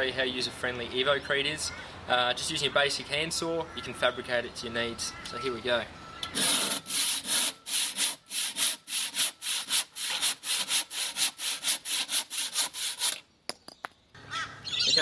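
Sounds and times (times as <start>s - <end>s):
handsaw cutting concrete: 6.4s - 13.2s.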